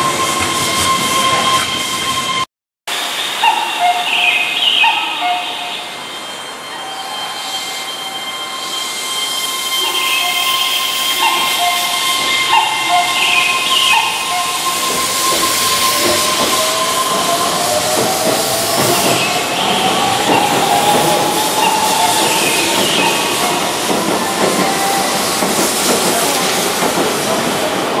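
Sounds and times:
train wheels clattering on rails: 0:11.2 - 0:28.0
steady rushing hiss: 0:13.1 - 0:28.0.

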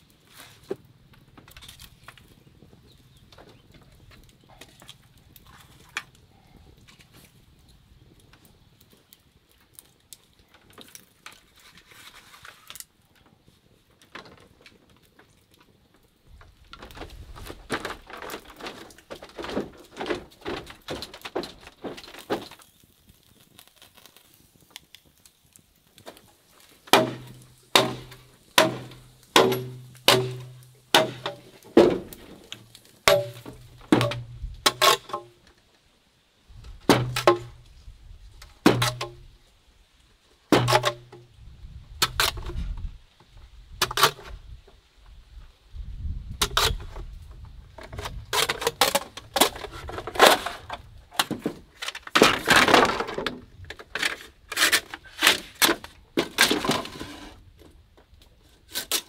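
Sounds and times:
wood fire crackling: 0:00.0 - 0:59.0
knife chopping bamboo: 0:26.9 - 0:32.0, 0:40.5 - 0:41.0.

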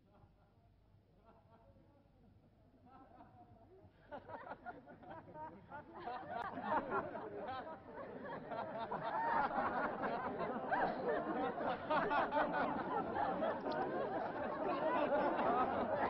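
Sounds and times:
crowd chatter: 0:06.0 - 0:16.0.

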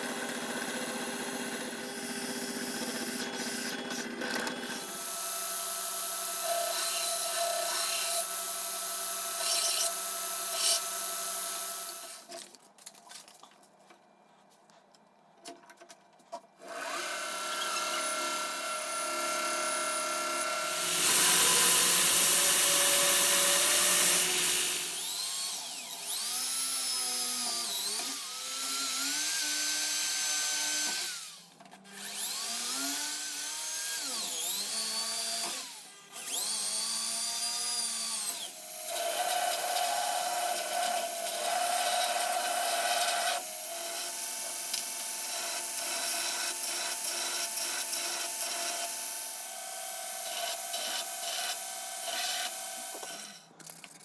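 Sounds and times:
power drill whining: 0:16.6 - 0:53.6.

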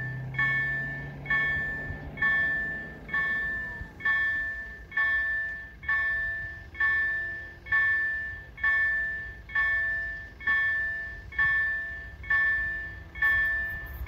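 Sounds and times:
level crossing warning bell ringing: 0:00.0 - 0:14.0.

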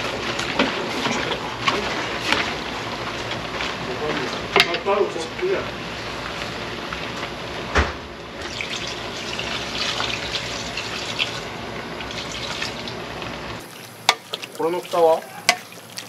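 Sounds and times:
pot simmering: 0:00.0 - 0:16.0
liquid pouring into a pot: 0:08.4 - 0:13.0, 0:13.6 - 0:16.0.

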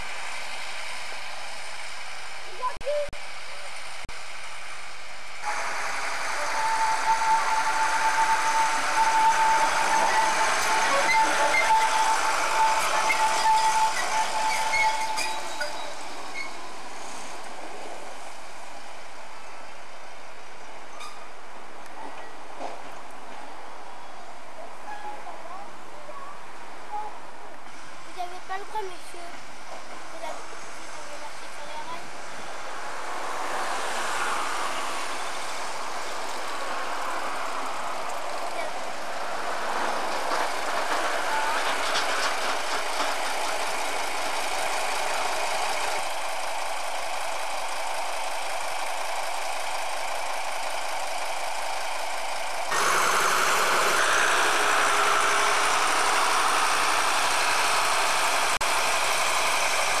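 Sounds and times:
diesel locomotive running: 0:00.0 - 1:00.0.

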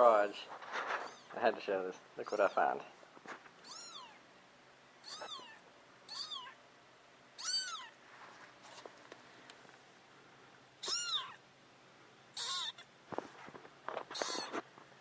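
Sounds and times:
kitten mewing: 0:03.6 - 0:04.2, 0:05.0 - 0:06.6, 0:07.4 - 0:08.0, 0:10.8 - 0:11.4, 0:12.4 - 0:12.9, 0:14.1 - 0:14.6.

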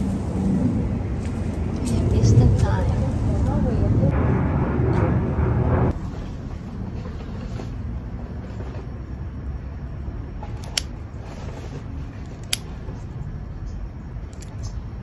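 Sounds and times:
low background rumble: 0:00.0 - 0:15.0
scissors snipping stems: 0:12.2 - 0:12.7.

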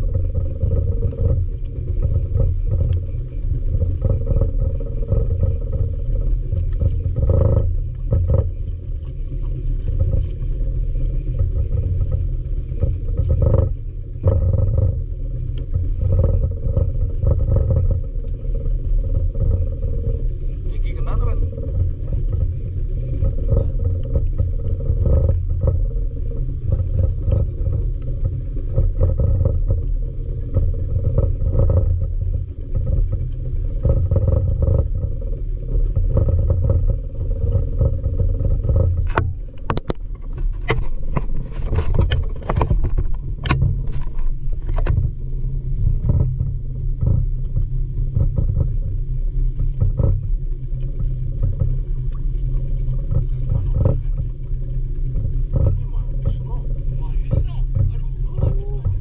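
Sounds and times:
muffled boat engine rumble: 0:00.0 - 0:59.0
sharp clicks and knocks: 0:35.9 - 0:45.1.

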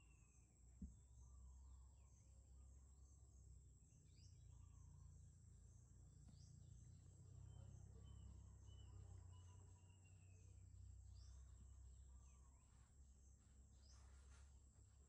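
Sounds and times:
distant bird chirps: 0:00.0 - 0:15.0.

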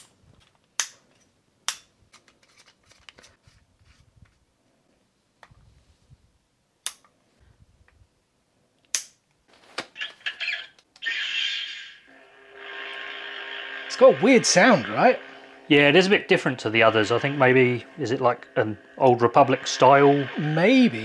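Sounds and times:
sharp plastic clicks: 0:00.0 - 0:02.6, 0:06.8 - 0:07.2, 0:08.8 - 0:09.3
handling rustle: 0:02.1 - 0:04.4, 0:09.4 - 0:10.0.

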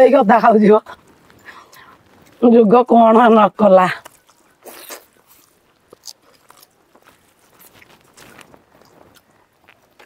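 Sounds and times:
biting and chewing food: 0:03.9 - 0:10.0.

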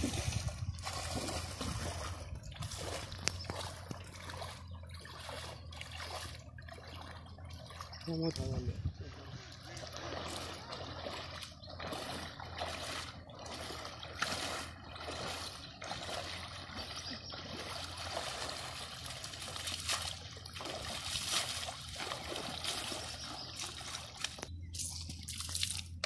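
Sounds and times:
shallow river water splashing: 0:00.0 - 0:26.0.

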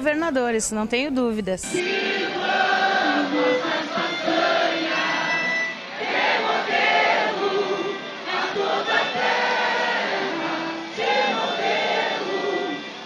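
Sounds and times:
violin playing: 0:01.6 - 0:13.0
crowd singing in chorus: 0:01.8 - 0:13.0.

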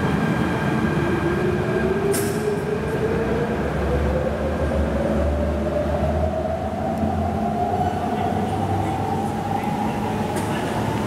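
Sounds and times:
train running gear rumble: 0:04.2 - 0:11.0.

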